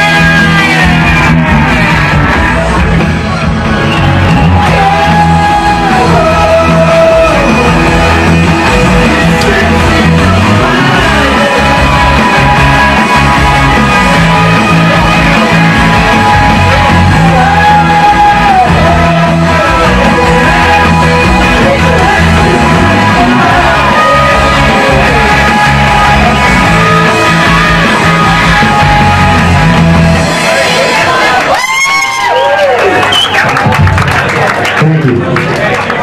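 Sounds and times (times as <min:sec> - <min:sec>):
man singing: 0:00.0 - 0:02.1, 0:04.6 - 0:29.5
drum kit: 0:00.0 - 0:31.0
electric guitars: 0:00.0 - 0:34.1
bass guitar: 0:00.0 - 0:35.6.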